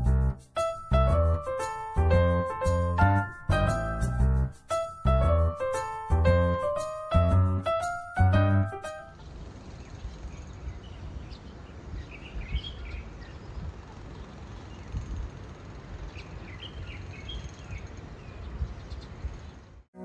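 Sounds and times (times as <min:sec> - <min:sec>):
small birds chirping: 0:08.9 - 0:19.8.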